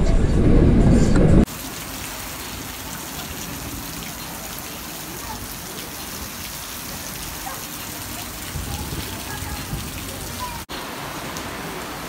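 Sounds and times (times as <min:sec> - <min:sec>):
low rumble: 0:00.0 - 0:01.5
steady rain: 0:01.4 - 0:12.0.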